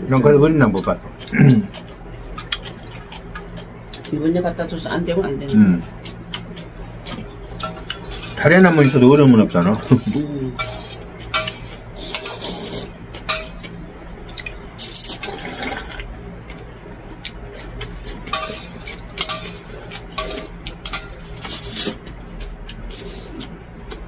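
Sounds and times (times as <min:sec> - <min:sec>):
slurping noodles: 0:15.0 - 0:16.0.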